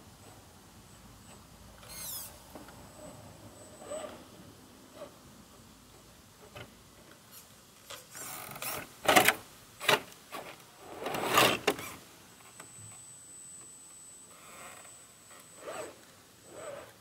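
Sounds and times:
small electric motor and gears: 1.8s - 2.4s.

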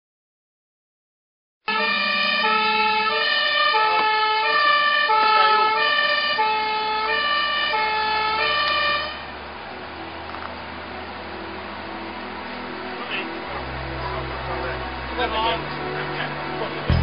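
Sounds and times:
truck engine and road noise: 1.6s - 17.0s
two-tone siren: 1.7s - 9.5s.

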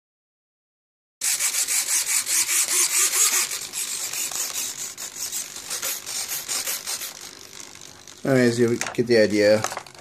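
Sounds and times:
servos buzzing in short bursts: 1.2s - 7.8s.

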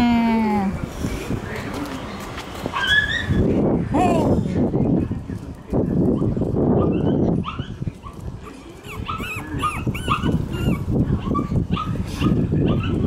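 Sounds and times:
puppies whimpering: 8.4s - 11.9s.

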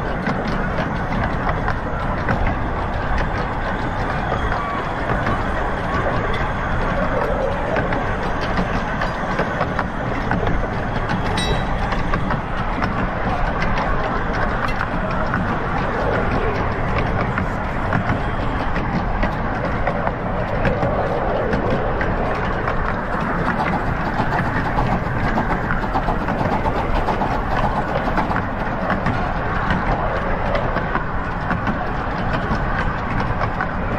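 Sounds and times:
train wheels rumbling: 0.0s - 33.9s
wheels clicking over rail joints: 0.0s - 33.9s
rail clicks clattering: 11.3s - 13.0s.

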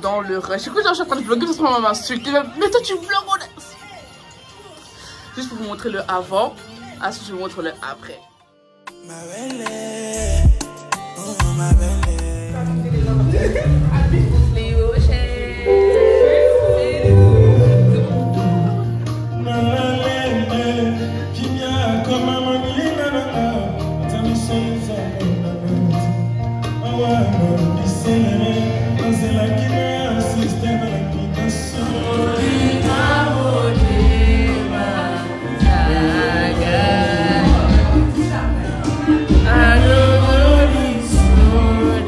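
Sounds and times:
live band playing: 8.8s - 42.0s
man singing: 8.9s - 12.9s, 15.6s - 42.0s.

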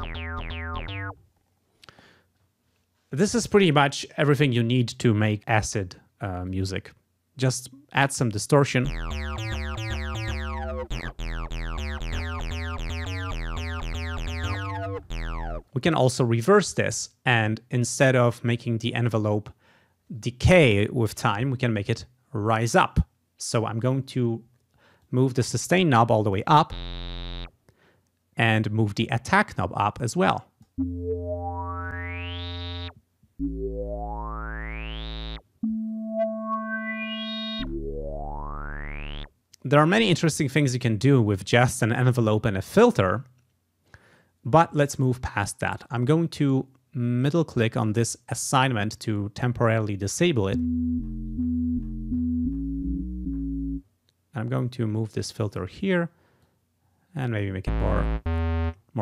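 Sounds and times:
synthesizer acid bass line: 0.0s - 1.2s, 8.8s - 15.8s, 26.6s - 27.5s, 30.8s - 39.3s, 50.6s - 53.8s, 57.7s - 58.8s.

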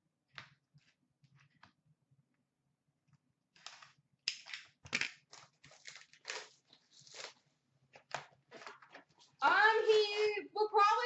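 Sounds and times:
packaging tearing and crinkling: 5.2s - 7.4s.

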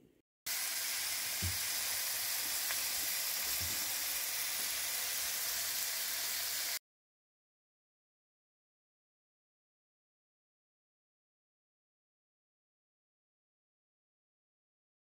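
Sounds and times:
meat sizzling in a frying pan: 0.5s - 6.8s.

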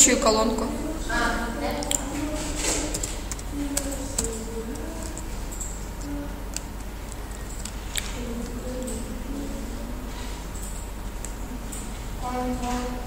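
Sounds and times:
keyboard keys clicking: 1.8s - 9.1s.

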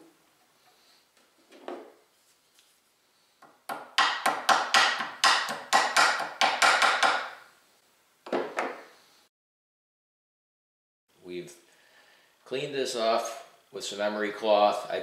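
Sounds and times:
small hammer tapping metal: 3.4s - 7.3s.

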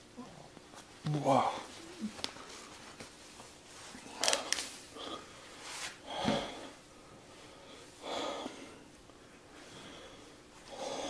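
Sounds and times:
man breathing hard through mouth: 5.0s - 6.8s, 7.4s - 8.9s.

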